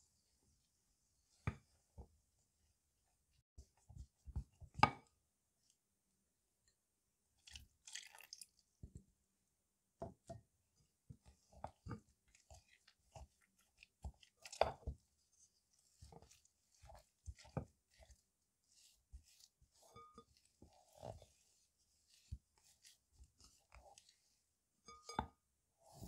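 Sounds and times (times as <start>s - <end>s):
moist dough crunching: 10.9s - 26.0s
wooden spoon scraping glass bowl: 11.6s - 26.0s.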